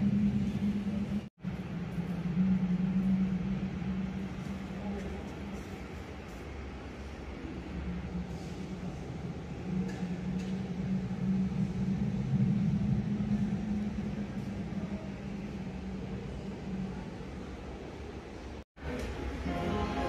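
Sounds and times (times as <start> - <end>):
steady low hum: 0.0 - 20.0
deep rumble: 7.4 - 17.8.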